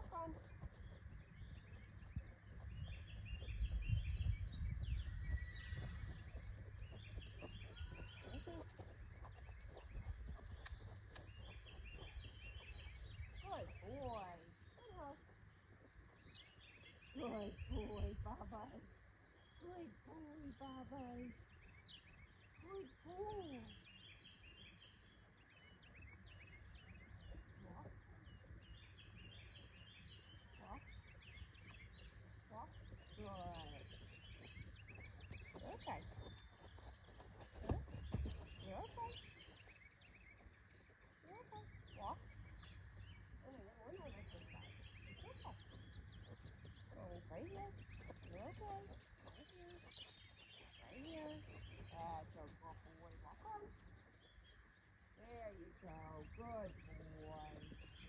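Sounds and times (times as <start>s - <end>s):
wind rumbling on microphone: 0.0s - 15.1s, 16.3s - 18.8s
birds chirping: 0.0s - 58.0s
low steady outdoor rumble: 0.0s - 58.0s.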